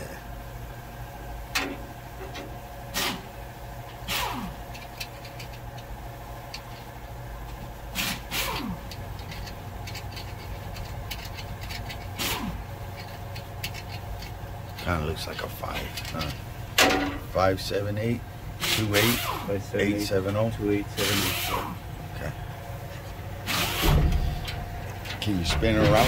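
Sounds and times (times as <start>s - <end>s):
steady mechanical hum: 0.0s - 26.0s
rag rubbing on metal: 8.0s - 14.9s.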